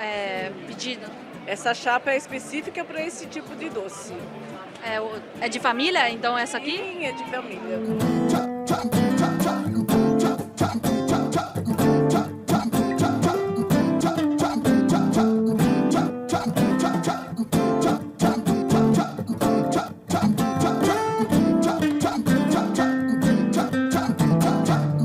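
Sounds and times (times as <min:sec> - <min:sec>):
strummed acoustic guitar music: 0:07.5 - 0:25.0
steady beat: 0:07.8 - 0:25.0.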